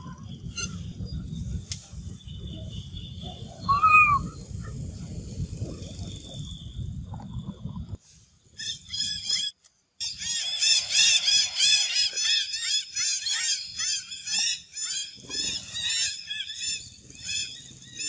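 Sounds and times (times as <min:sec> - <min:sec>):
chorus of high chirps: 0:02.2 - 0:04.7, 0:08.6 - 0:18.0.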